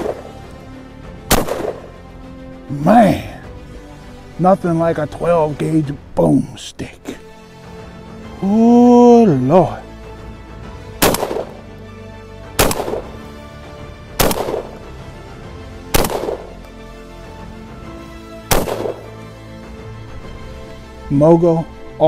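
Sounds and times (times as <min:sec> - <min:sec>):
shotgun shots with echo: 0:00.0 - 0:00.3, 0:01.3 - 0:01.9, 0:11.0 - 0:11.6, 0:12.6 - 0:13.2, 0:14.2 - 0:14.8, 0:15.9 - 0:16.5, 0:18.5 - 0:19.1
background music: 0:00.0 - 0:22.0.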